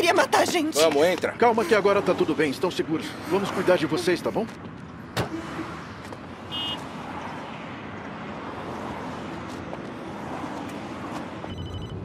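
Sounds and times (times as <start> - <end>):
high electronic beep: 11.5 - 12.0.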